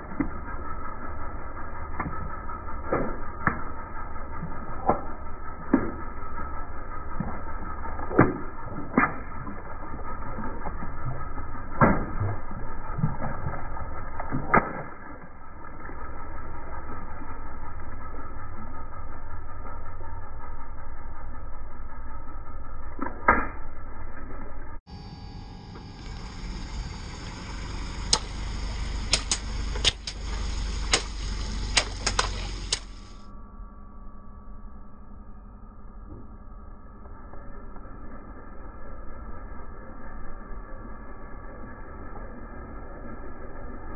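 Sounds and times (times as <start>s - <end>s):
crackles: 0.0s - 33.3s
steady low hum: 0.0s - 43.9s
water splashing on concrete: 7.1s - 16.0s, 29.1s - 33.0s
water balloons popping: 10.3s - 15.2s, 29.1s - 33.0s.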